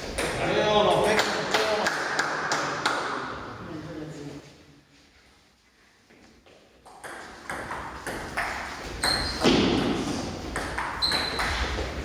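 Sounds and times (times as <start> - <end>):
table tennis ball hits: 6.8 - 12.0
short high squeaks: 9.0 - 9.4, 11.0 - 11.6.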